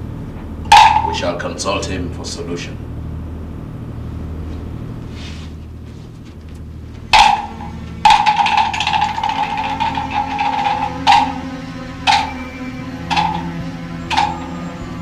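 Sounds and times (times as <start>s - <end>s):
low music drone: 0.0s - 15.0s
loud percussion strikes: 0.6s - 1.4s, 7.1s - 15.0s
struck ringing tone: 0.7s - 1.4s, 7.1s - 15.0s.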